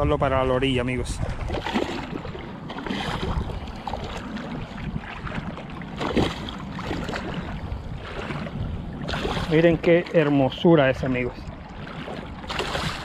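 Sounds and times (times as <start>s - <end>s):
water splashing and sloshing: 0.0s - 13.0s.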